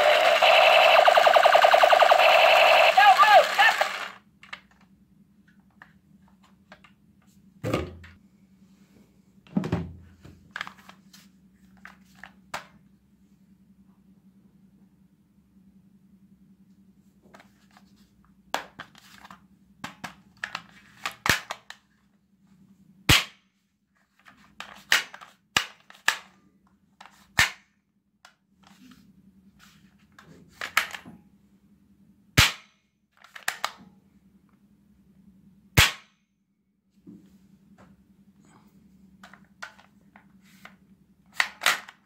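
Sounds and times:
toy revolver clicking: 0.0s - 4.2s.

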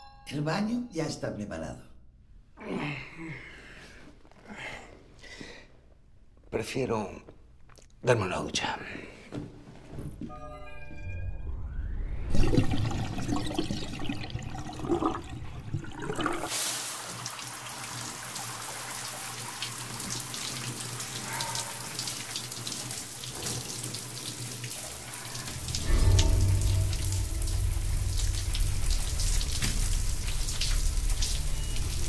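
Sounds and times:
low rumble: 10.3s - 15.9s, 25.3s - 32.0s
shower water spraying: 16.4s - 32.0s.

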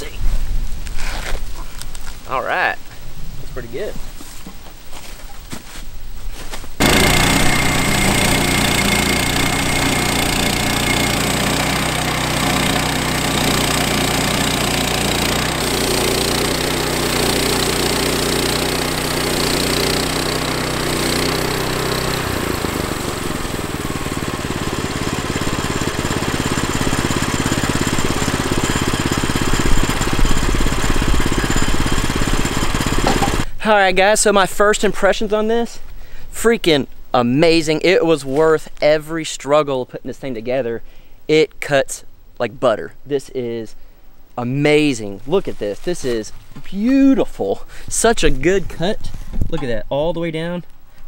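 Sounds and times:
blade sawing through log: 6.8s - 33.4s
bandsaw mill engine: 6.8s - 33.5s.

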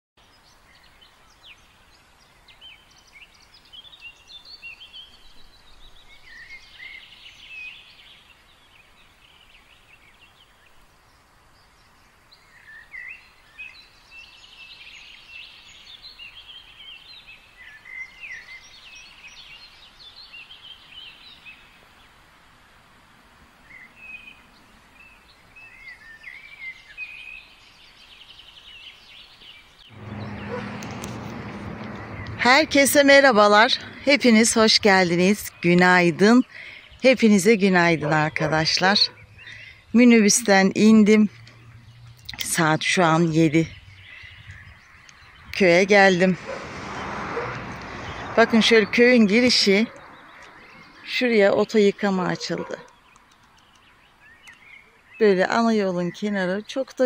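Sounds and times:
small birds chirping: 0.2s - 22.2s, 23.5s - 57.0s
faint outdoor background noise: 0.2s - 57.0s.

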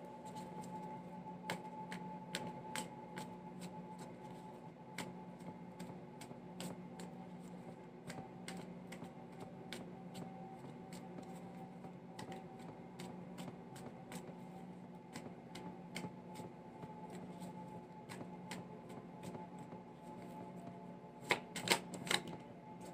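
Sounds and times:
faint steady hum: 0.0s - 22.9s
cards being shuffled: 21.2s - 22.9s.

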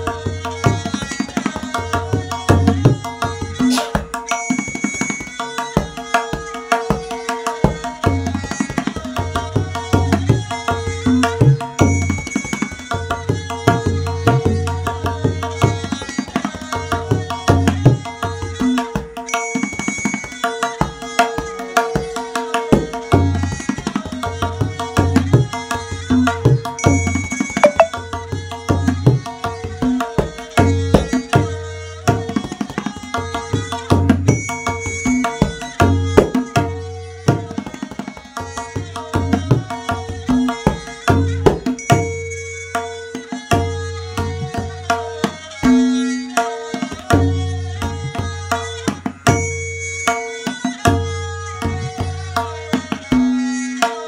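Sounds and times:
tabla strokes: 0.0s - 54.0s
melodic loop of held notes: 27.6s - 28.0s.

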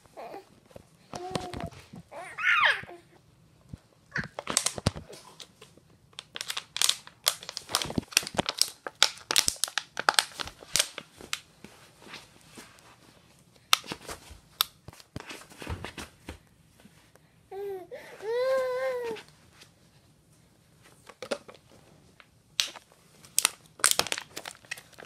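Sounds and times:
plastic bottle crinkling: 4.2s - 11.4s, 22.6s - 25.0s.

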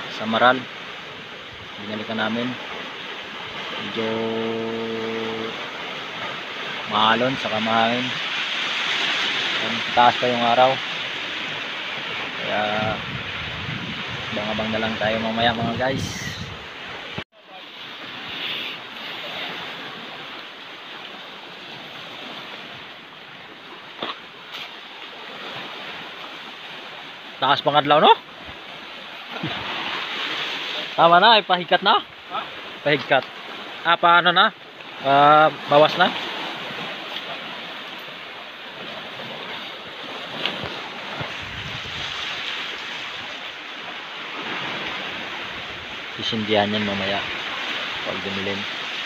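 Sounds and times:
surf washing onto stones: 0.0s - 49.0s
wind: 0.0s - 49.0s
wind buffeting microphone: 11.9s - 17.2s, 40.2s - 43.3s.

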